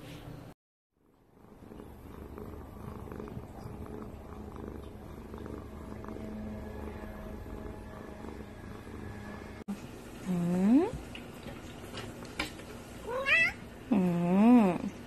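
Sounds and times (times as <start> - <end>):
cat purring: 1.0 - 10.9.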